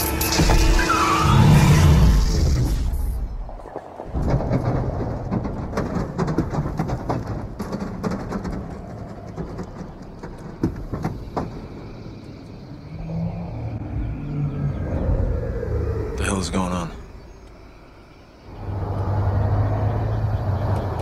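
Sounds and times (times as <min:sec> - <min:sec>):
scattered clicks and knocks: 0:03.6 - 0:12.0
low rumble of vehicles: 0:03.7 - 0:21.0.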